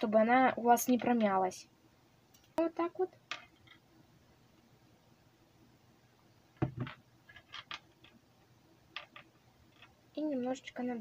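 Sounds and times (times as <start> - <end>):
short knock: 6.6 - 7.0.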